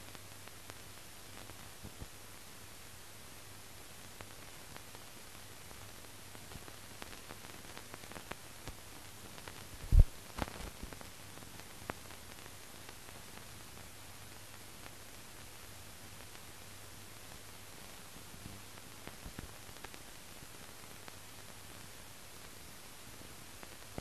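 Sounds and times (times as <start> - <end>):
film hiss and low hum: 0.0 - 24.0
film crackles and clicks: 6.4 - 13.5, 23.6 - 24.0.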